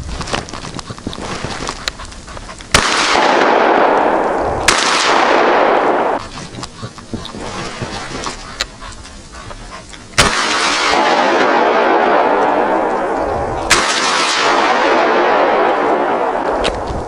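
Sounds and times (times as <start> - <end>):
shotgun shots: 2.7 - 6.3, 10.2 - 16.8.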